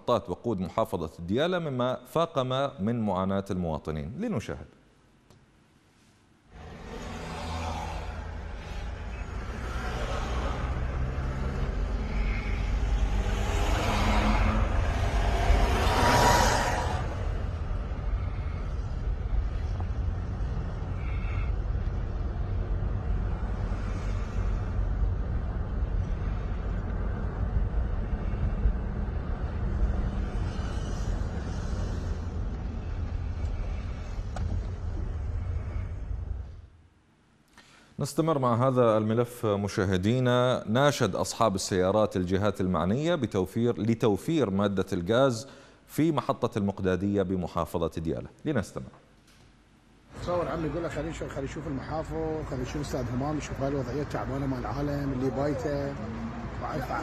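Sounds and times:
car engine and road noise: 6.5s - 36.8s, 50.1s - 57.0s.

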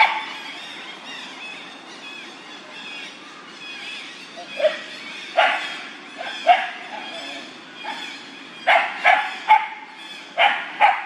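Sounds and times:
dog barking: 0.0s - 0.2s, 5.4s - 7.1s, 8.7s - 9.8s, 10.4s - 11.0s.

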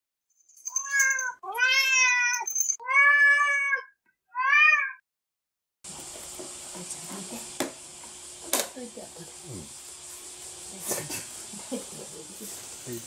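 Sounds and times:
cat meowing: 0.8s - 5.0s.

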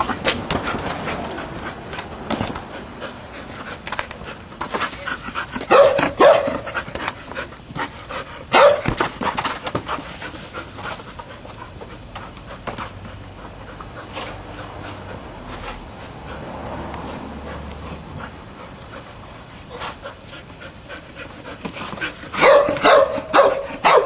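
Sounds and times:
dog panting: 0.0s - 23.7s
dog barking: 5.7s - 6.7s, 8.5s - 9.0s, 22.4s - 24.0s.

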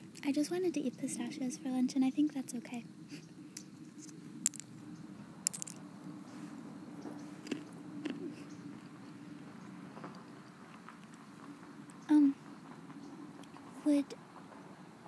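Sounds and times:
faint steady hum: 0.0s - 15.0s
pistachios cracking: 4.4s - 4.7s, 5.5s - 5.8s, 7.4s - 8.2s
chewing: 7.4s - 8.3s.

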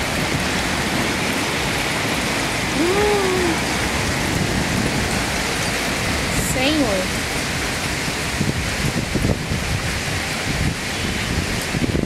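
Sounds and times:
heavy rain with hail: 0.0s - 12.0s
short voice sound: 2.8s - 3.6s.

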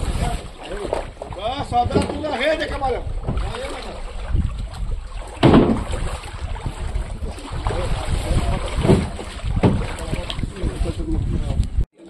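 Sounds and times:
wind rumbling on microphone: 0.0s - 11.9s
sudden thump: 5.4s - 6.0s, 8.8s - 10.0s.

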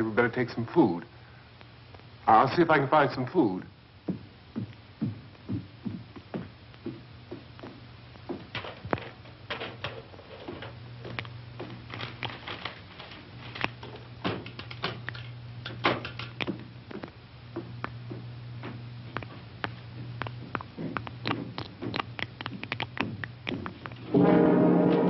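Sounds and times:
low steady hum: 0.0s - 25.0s
irregular clicks and knocks: 6.0s - 24.1s.

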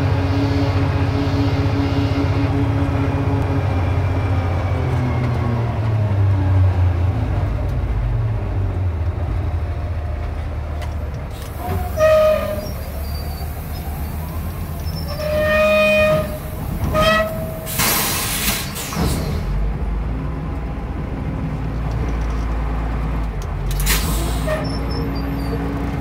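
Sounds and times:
diesel engine running: 0.0s - 26.0s
short horn toot: 11.6s - 12.9s, 15.0s - 18.4s.

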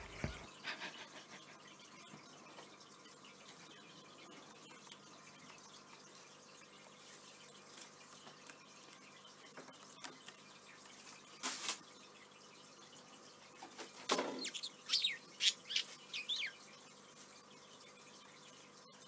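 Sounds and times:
budgerigar chirping: 14.4s - 16.6s.

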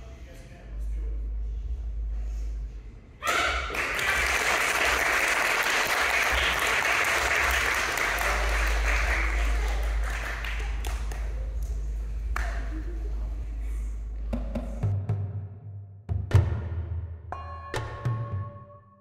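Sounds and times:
audience clapping: 3.6s - 12.9s.

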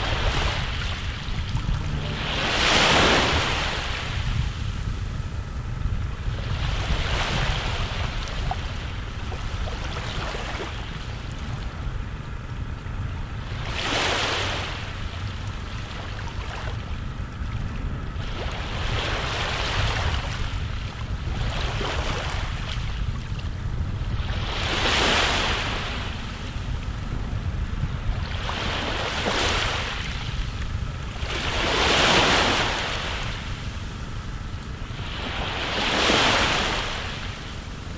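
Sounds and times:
sea surf washing in: 0.0s - 5.0s
wind on microphone: 0.0s - 37.9s.

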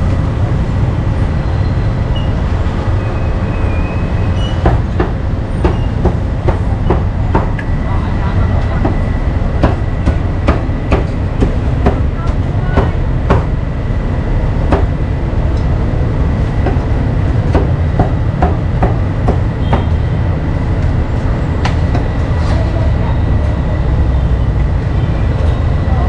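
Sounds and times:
low rumble of street noise: 0.0s - 26.0s
cleaver chopping meat on wood: 9.6s - 13.6s, 17.5s - 19.9s.

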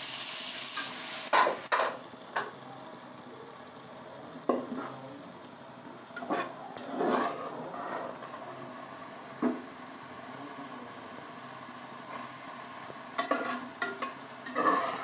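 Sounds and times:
sauce sizzling in oil: 0.0s - 1.7s, 8.2s - 15.0s
metal spoon scraping a pan: 6.2s - 8.4s, 13.2s - 15.0s.

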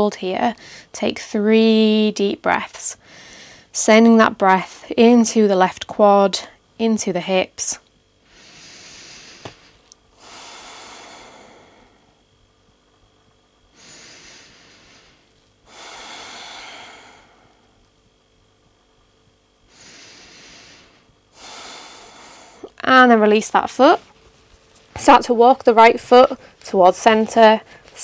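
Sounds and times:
woman breathing deeply: 0.6s - 0.9s, 3.0s - 3.7s, 8.2s - 12.3s, 13.7s - 17.9s, 19.7s - 22.7s.

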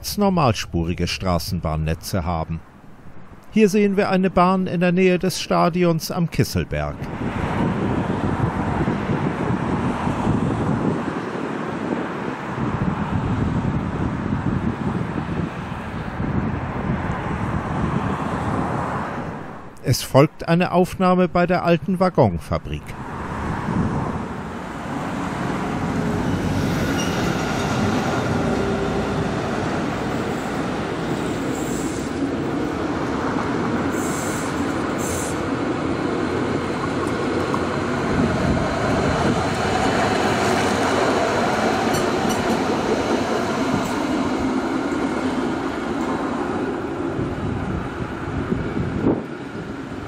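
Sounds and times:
tram rolling past: 7.0s - 19.6s, 22.9s - 50.0s
high wheel squeals: 26.2s - 27.8s.

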